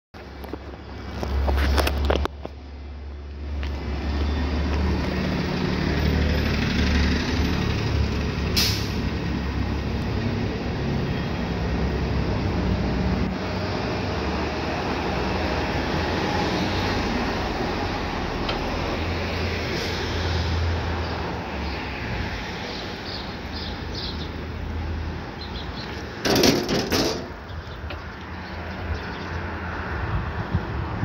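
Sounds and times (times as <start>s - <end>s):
short hiss: 8.6s - 9.0s
wind rush on microphone: 29.7s - 31.0s.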